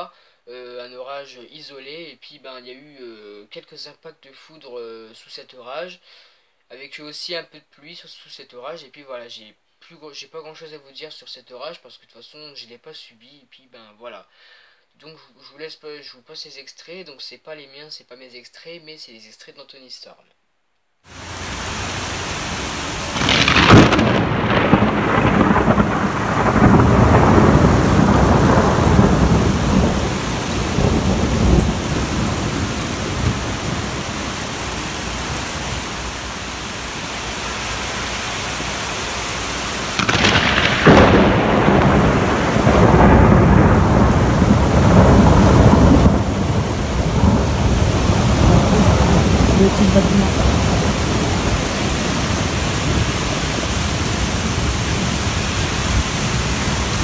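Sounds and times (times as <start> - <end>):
steady rain: 21.1 - 57.0
rolling thunder: 21.2 - 34.6, 40.0 - 57.0
sharp thunder crack: 22.8 - 34.2, 39.9 - 55.1.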